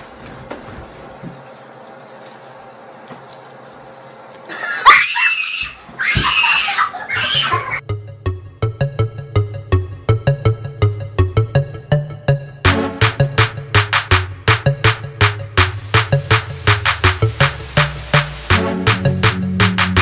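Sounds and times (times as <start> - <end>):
high-pitched vocal squeals: 4.5 - 7.8
electronic music with steady beat: 7.8 - 20.0.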